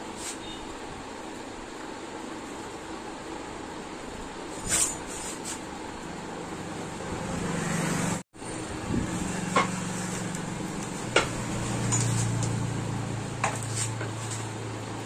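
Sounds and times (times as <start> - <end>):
low machine hum: 5.8 - 15.0.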